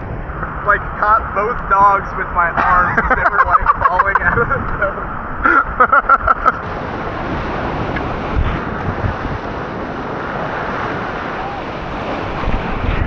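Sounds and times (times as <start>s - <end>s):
whitewater rushing: 6.6s - 13.0s.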